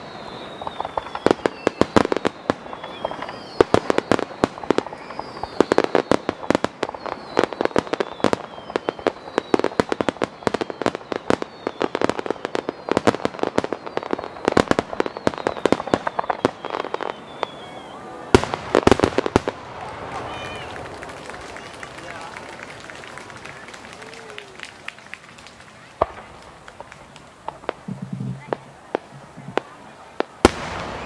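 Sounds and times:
fireworks bangs and crackles: 0.0 - 31.0
high whistling fireworks: 0.0 - 31.0
loud firework bang: 18.3 - 19.6.

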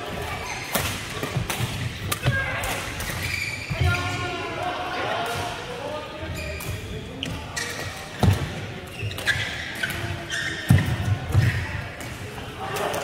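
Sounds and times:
shoe squeaks: 3.2 - 3.9, 6.3 - 8.0, 8.8 - 10.8.

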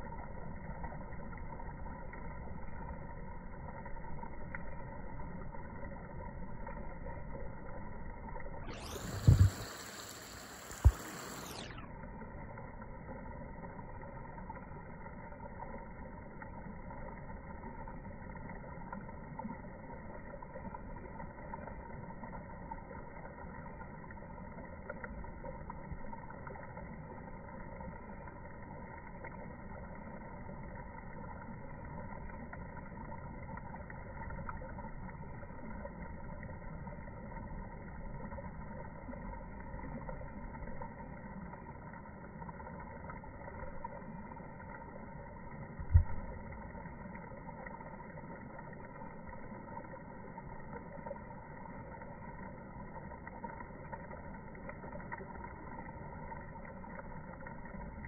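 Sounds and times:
low rumbling background noise: 0.0 - 11.9.

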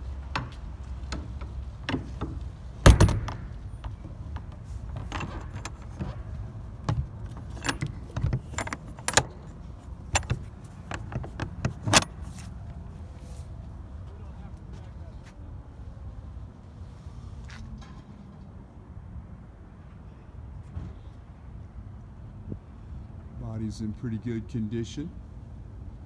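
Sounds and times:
metal latch clanking: 0.3 - 12.3.

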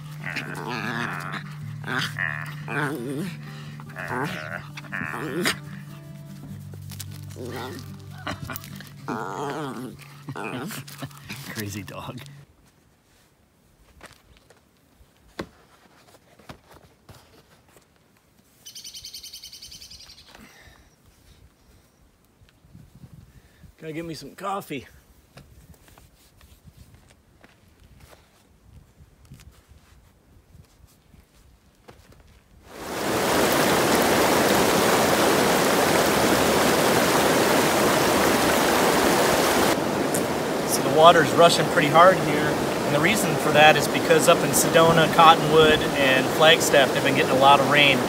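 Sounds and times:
river water rushing over rapids: 0.0 - 12.0, 32.7 - 48.0.

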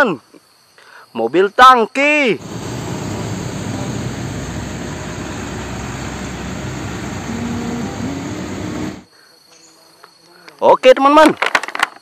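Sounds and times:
faint rising tone: 2.4 - 9.1
truck driving past: 2.4 - 9.1.

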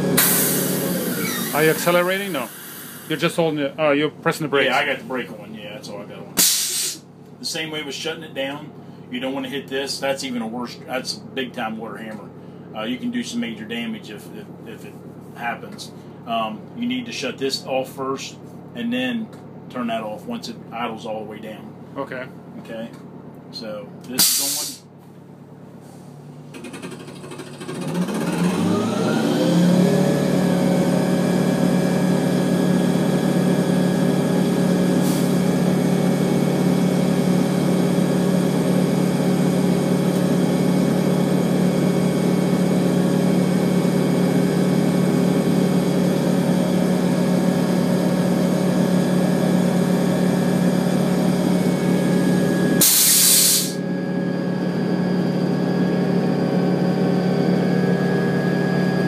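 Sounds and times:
truck engine and water pump whine: 0.0 - 59.0
short loud hiss: 6.4 - 7.0, 24.2 - 24.8, 52.8 - 53.8.

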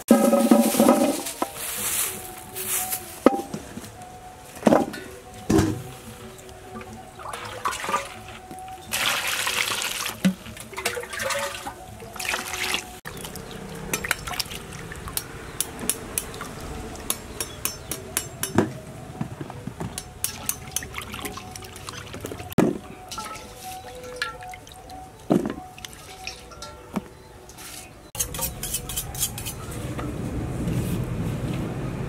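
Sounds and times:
hands sloshing vegetables in water: 6.8 - 15.2, 20.3 - 26.8
water pouring into metal bowl: 8.9 - 15.2.

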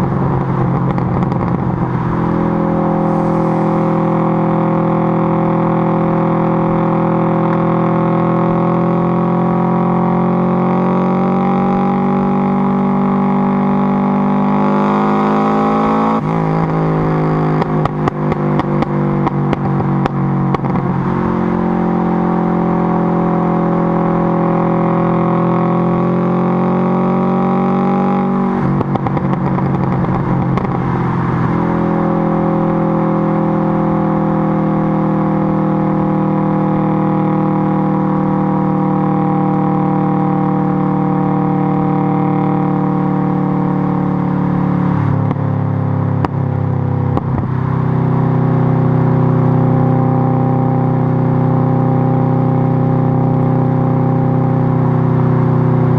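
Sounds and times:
deep exhaust drone: 0.0 - 12.4
exhaust crackles and pops: 0.1 - 2.0, 17.6 - 20.9, 28.6 - 30.8, 46.2 - 46.4, 47.1 - 47.5.

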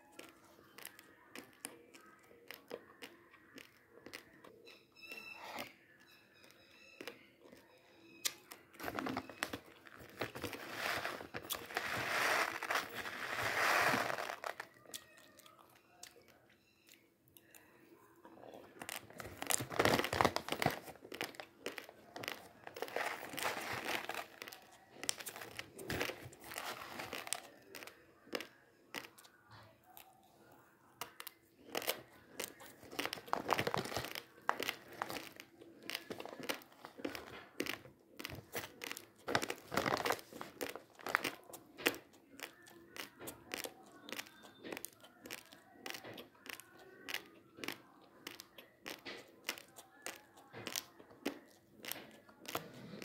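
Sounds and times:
raw rice being chewed: 0.0 - 53.0
plastic bag crinkling: 8.8 - 14.8, 18.8 - 27.9, 31.7 - 42.0
spoon scooping dry rice: 10.3 - 14.8.

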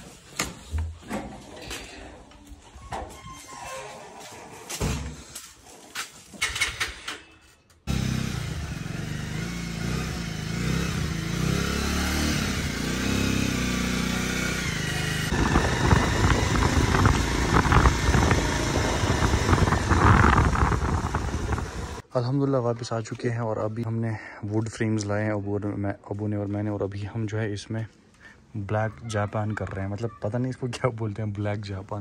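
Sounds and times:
vehicle engine running: 7.9 - 22.0
rattling rush: 14.6 - 22.0.

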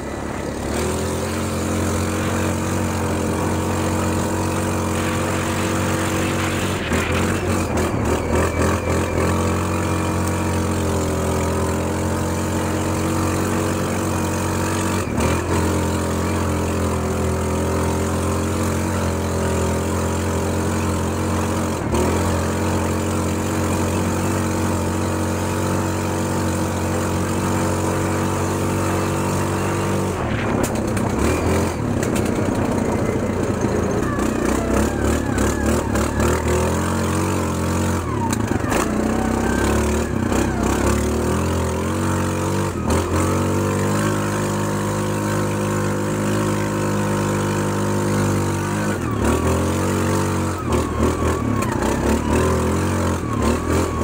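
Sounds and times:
atv engine idling: 0.0 - 54.0.

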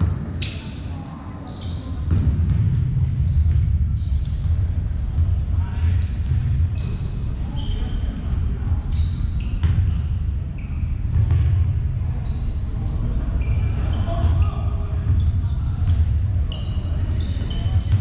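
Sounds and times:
sneaker squeaks on floor: 0.0 - 18.0
basketball bouncing: 2.1 - 5.4, 9.6 - 10.0, 11.1 - 11.7.

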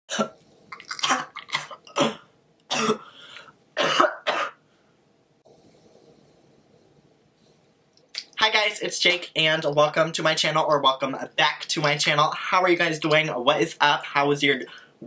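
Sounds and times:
man coughing hard: 1.0 - 3.1, 3.8 - 4.6.

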